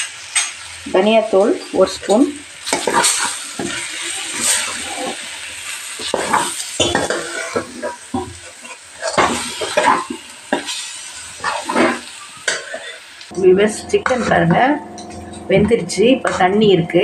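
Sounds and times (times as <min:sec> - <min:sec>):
spices sizzling in oil: 0:00.0 - 0:14.2
spoon scraping a metal pan: 0:02.0 - 0:05.2, 0:06.0 - 0:13.0, 0:13.7 - 0:16.9.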